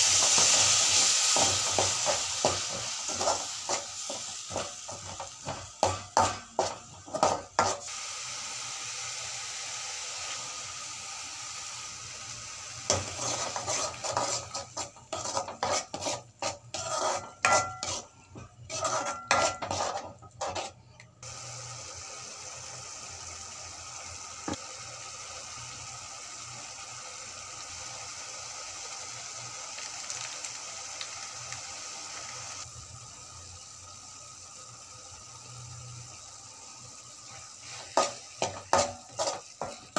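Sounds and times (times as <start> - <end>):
metal spoon scraping a pan: 0.0 - 7.9, 12.9 - 21.0, 37.6 - 39.9
masala sizzling: 0.0 - 39.9.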